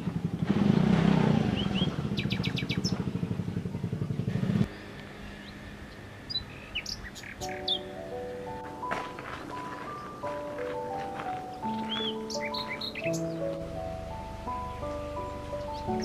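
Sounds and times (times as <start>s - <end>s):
small engine running: 0.0s - 6.8s
birds chirping and trilling: 0.0s - 16.0s.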